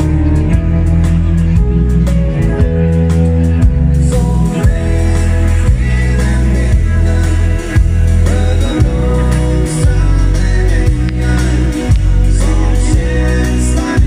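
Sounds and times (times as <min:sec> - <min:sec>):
drum kit: 0:00.0 - 0:14.0
live dance band over pa: 0:00.0 - 0:14.0
strong bass: 0:00.0 - 0:14.0
person singing: 0:03.9 - 0:14.0.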